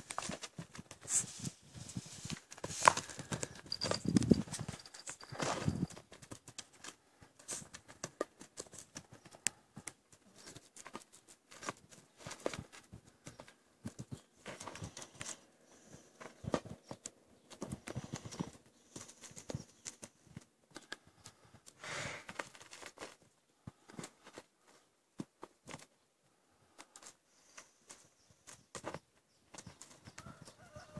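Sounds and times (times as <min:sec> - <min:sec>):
hooves stepping on gravelly dirt: 0:00.0 - 0:06.5, 0:29.6 - 0:30.9.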